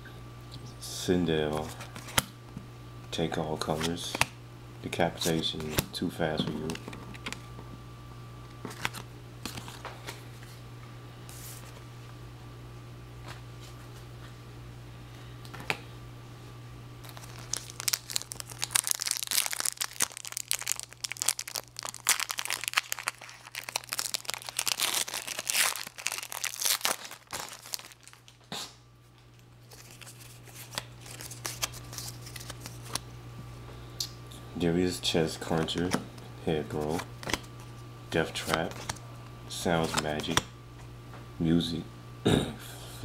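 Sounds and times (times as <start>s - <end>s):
cards being handled: 3.6s - 4.3s, 5.2s - 7.5s, 8.6s - 10.5s, 17.0s - 28.4s, 29.6s - 33.1s, 35.4s - 36.0s, 36.6s - 39.0s, 39.6s - 40.5s
foil wrapper tearing and crinkling: 17.0s - 28.4s, 29.7s - 33.0s.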